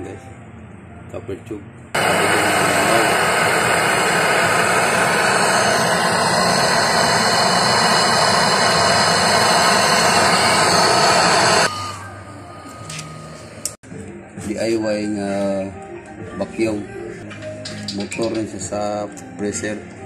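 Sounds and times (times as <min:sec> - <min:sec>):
torch flame hissing: 0:02.0 - 0:11.7.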